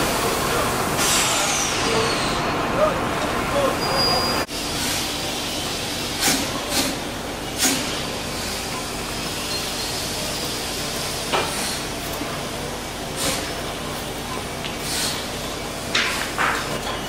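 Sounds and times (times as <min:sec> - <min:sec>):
steam puffs: 0:00.0 - 0:02.5, 0:07.6 - 0:08.6, 0:13.1 - 0:13.6, 0:14.8 - 0:15.4
steam hissing: 0:00.0 - 0:12.0, 0:13.0 - 0:13.6, 0:14.8 - 0:15.4.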